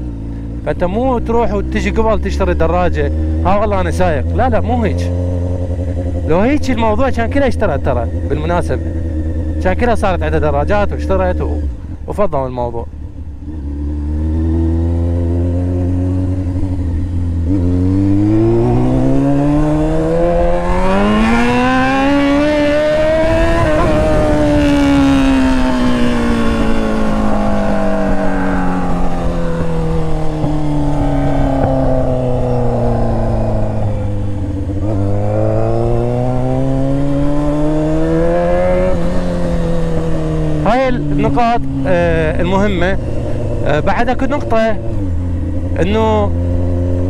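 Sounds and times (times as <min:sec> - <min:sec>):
motorcycle engine under throttle: 0:00.0 - 0:47.0.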